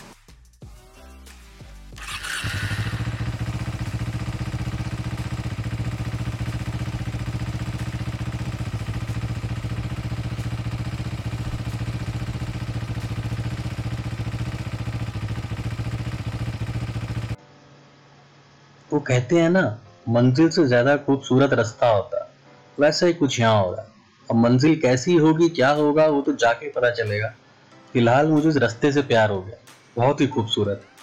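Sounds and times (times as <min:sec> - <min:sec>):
motorcycle engine cruising: 0:02.0 - 0:17.4.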